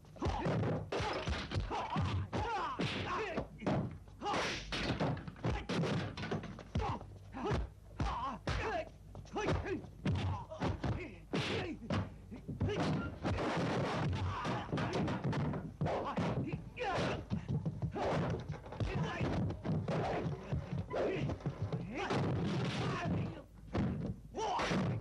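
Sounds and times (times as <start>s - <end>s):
fighters shouting and grunting: 0.1s - 4.7s, 5.4s - 5.8s, 6.7s - 13.3s, 14.0s - 25.0s.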